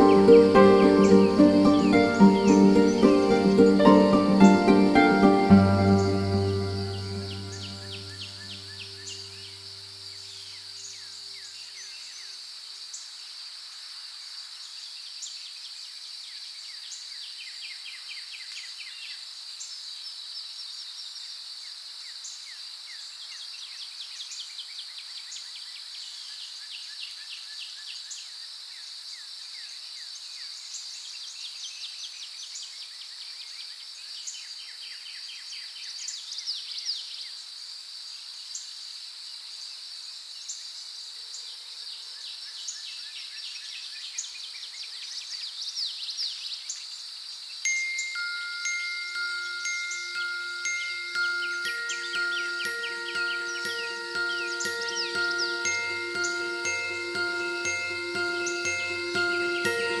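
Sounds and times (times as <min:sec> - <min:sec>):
soft music chord: 0:00.0 - 0:09.8, 0:48.1 - 1:00.0
insect drone: 0:00.0 - 0:26.7, 0:37.0 - 0:43.2, 0:46.4 - 1:00.0
insect chirping trills: 0:00.0 - 1:00.0.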